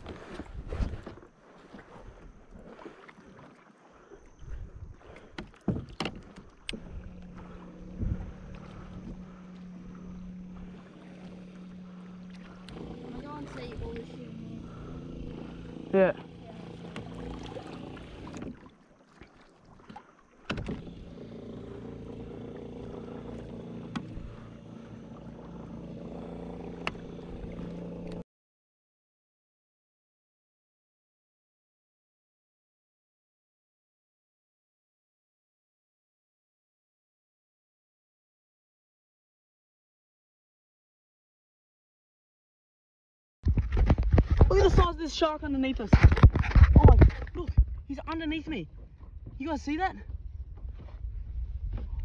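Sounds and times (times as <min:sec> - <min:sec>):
steady low hum: 0:06.3 - 0:18.7, 0:20.5 - 0:28.2.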